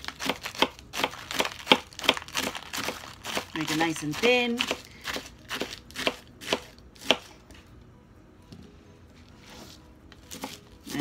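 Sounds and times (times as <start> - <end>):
knife chopping lettuce on board: 0.0 - 7.3, 10.3 - 11.0.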